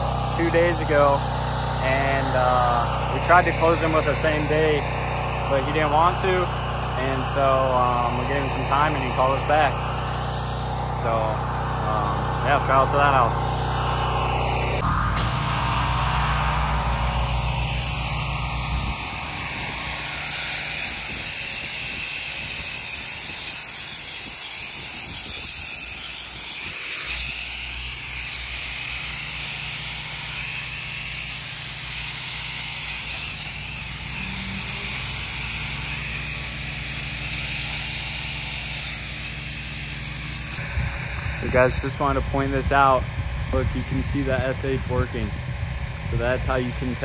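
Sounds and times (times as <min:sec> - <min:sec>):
low motor hum: 0:00.0 - 0:47.0
spray gun hissing: 0:13.8 - 0:40.6.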